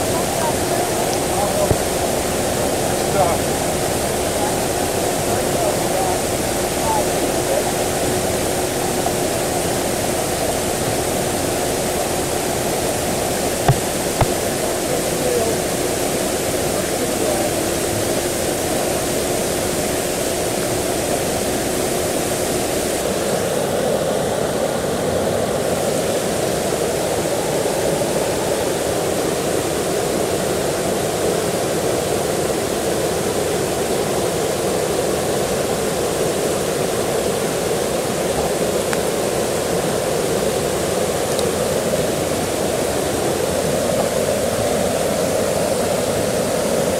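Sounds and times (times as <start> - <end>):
faint steady hum: 0.0 - 46.9
floodwater rushing: 0.0 - 46.9
short knocks: 13.7 - 14.4.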